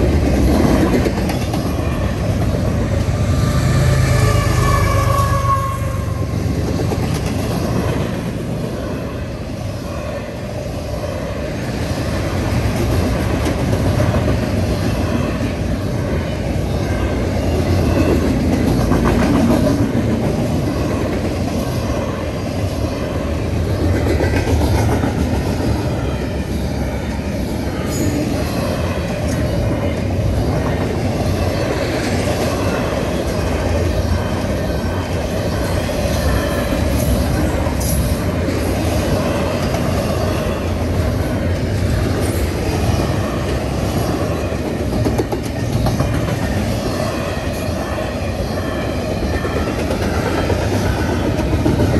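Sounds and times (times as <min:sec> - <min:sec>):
steel wheels clattering on rails: 0:00.0 - 0:03.1, 0:16.9 - 0:26.8, 0:27.6 - 0:51.9
freight train rumble: 0:00.0 - 0:51.9.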